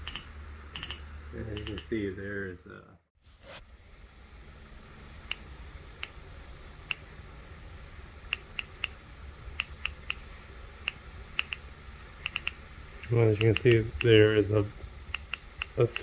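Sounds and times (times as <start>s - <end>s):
faint low hum: 0.0s - 16.0s
ignition sparks snapping: 12.2s - 14.2s.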